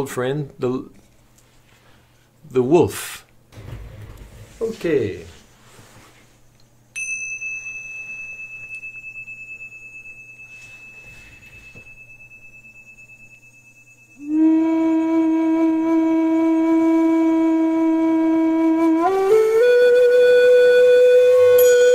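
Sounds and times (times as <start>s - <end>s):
small bells ringing: 6.9s - 14.3s, 21.6s - 21.9s
flute low held note: 14.2s - 21.9s.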